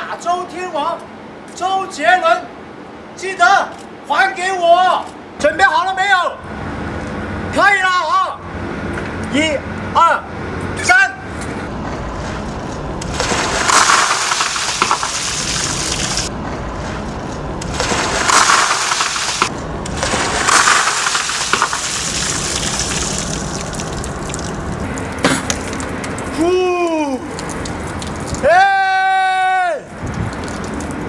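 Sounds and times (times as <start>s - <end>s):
ice water pouring and splashing: 13.0s - 16.3s, 17.6s - 28.6s, 29.9s - 31.0s.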